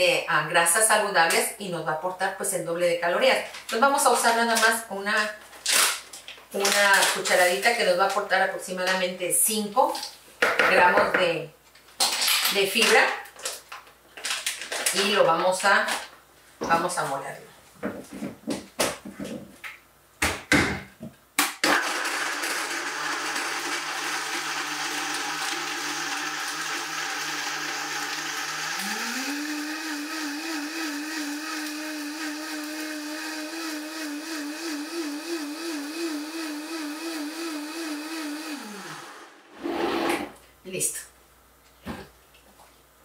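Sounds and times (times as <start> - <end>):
blender motor running: 21.6 - 40.1.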